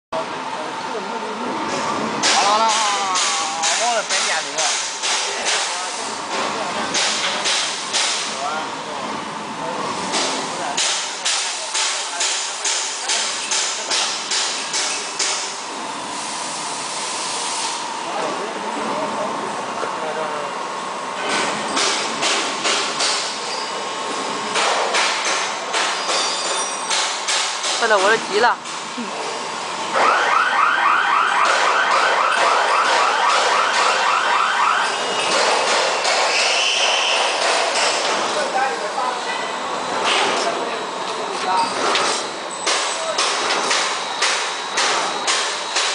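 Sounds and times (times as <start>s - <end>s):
machine running with faint hum: 0.2s - 45.9s
pulsing electronic warning buzzer: 29.9s - 35.2s.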